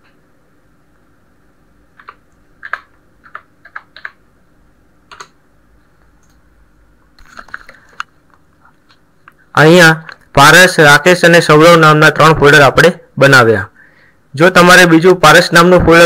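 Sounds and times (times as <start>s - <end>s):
computer keyboard keystrokes: 2.0s - 4.2s, 5.1s - 5.4s.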